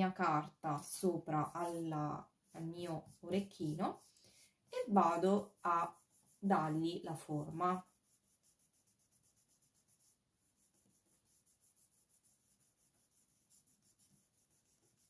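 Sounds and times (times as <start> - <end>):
paper rubbing by hand: 0.8 - 15.0.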